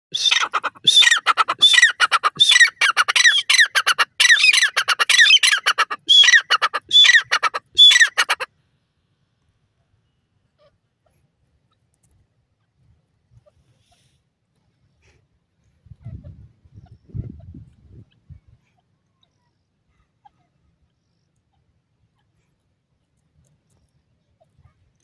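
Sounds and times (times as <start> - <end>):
francolin calling: 0.1 - 8.5.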